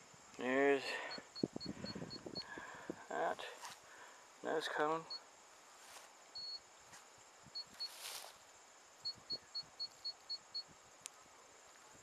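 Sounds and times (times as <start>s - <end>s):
brief rustle: 7.7s - 8.4s.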